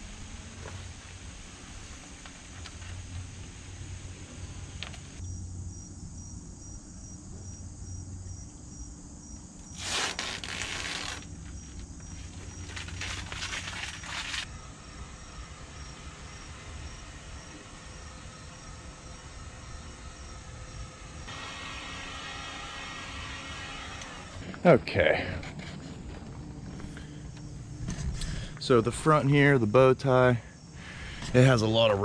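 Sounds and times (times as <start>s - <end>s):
insects trilling: 0.0s - 21.3s, 24.4s - 32.0s
low steady hum: 0.0s - 32.0s
rustling noise bursts: 9.7s - 14.5s.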